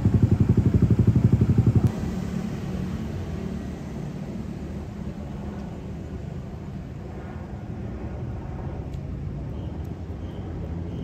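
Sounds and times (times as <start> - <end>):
engine puttering: 0.0 - 4.8
vehicle road rumble: 0.0 - 11.0.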